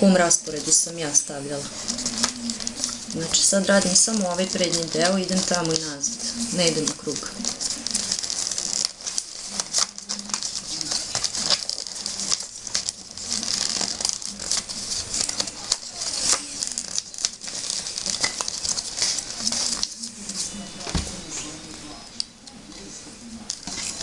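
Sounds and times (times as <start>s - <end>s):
paper tubes rustling and crackling: 0.0s - 24.0s
small paper clicks: 1.8s - 20.4s.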